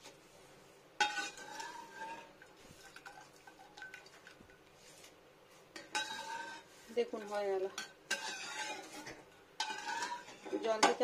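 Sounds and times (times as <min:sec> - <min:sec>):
metal skimmer on metal pan: 0:01.0 - 0:04.2, 0:05.8 - 0:11.0.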